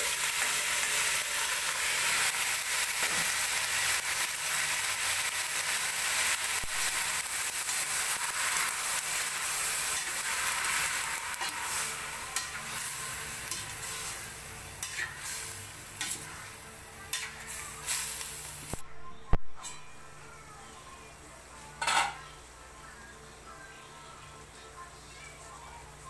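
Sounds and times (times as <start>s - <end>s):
meat sizzling in a pot: 0.0s - 18.8s
metal spoon scraping a pot: 14.8s - 16.2s.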